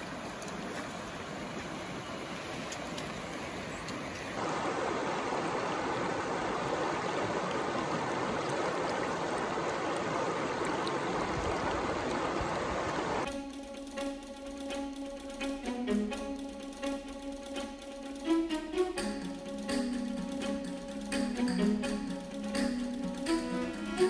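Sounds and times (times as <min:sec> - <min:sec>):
stream rushing over rocks: 0:00.0 - 0:13.3.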